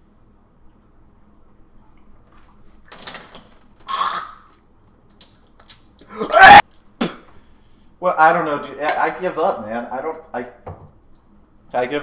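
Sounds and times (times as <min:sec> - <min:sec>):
man gagging and retching: 0:03.8 - 0:04.6, 0:06.0 - 0:07.3.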